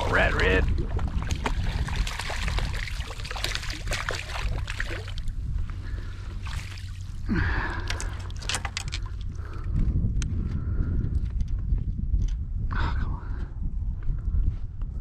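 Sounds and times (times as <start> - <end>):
water splashing and trickling: 0.0 - 9.4
steady low rumble: 0.0 - 15.0.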